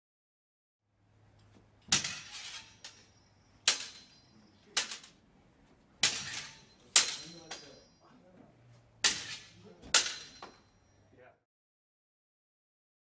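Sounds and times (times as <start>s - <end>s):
swords striking together: 1.9s - 4.2s, 6.0s - 7.8s, 9.0s - 10.6s.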